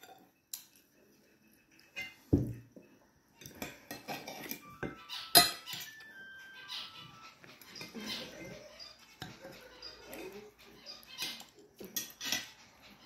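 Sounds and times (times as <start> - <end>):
cutlery clinking on a plate: 1.8 - 2.6, 3.4 - 6.1, 11.1 - 12.9.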